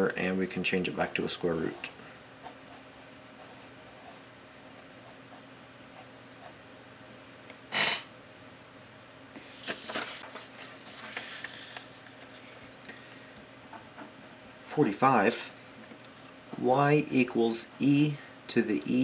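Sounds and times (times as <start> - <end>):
paper rustling and sliding: 9.4 - 12.6.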